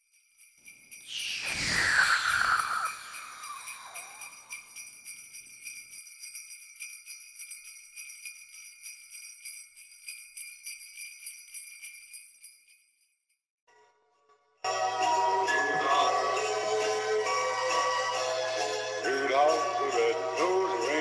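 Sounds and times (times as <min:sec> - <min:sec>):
jingle bells shaken: 0:00.0 - 0:13.4, 0:14.9 - 0:21.0
falling whoosh: 0:01.1 - 0:04.6.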